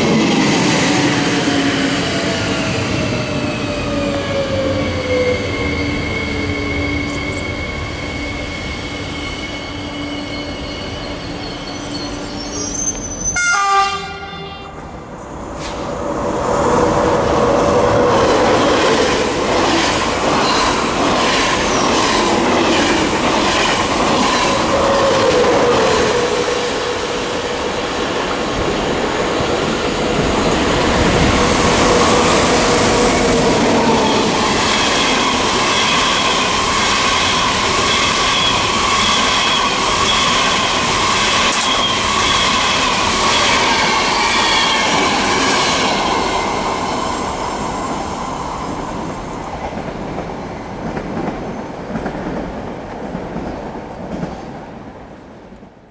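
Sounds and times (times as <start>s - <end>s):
train wheels on rails: 0.0s - 13.4s, 14.7s - 55.7s
high steady squeal: 2.6s - 13.4s.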